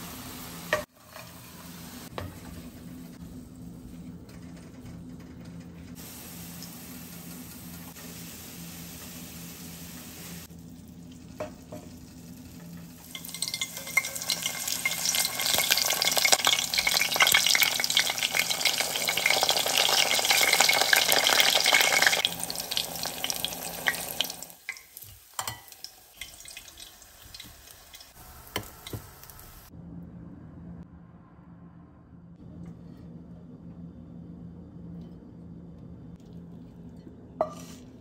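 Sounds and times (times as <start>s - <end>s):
food sizzling in a frying pan: 0.0s - 2.7s, 6.0s - 29.7s.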